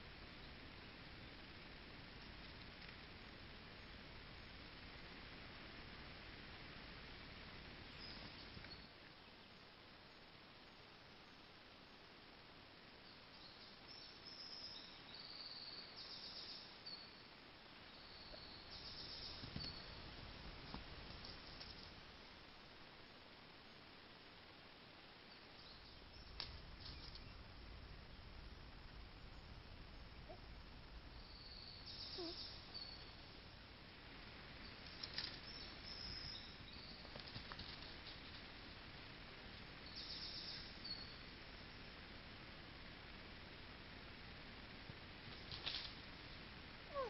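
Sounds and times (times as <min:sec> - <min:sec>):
faint high-pitched birdsong: 0:00.0 - 0:47.0
low hiss: 0:00.0 - 0:47.0
soft rustle: 0:18.2 - 0:23.5, 0:25.2 - 0:28.0, 0:32.0 - 0:40.8, 0:44.8 - 0:47.0.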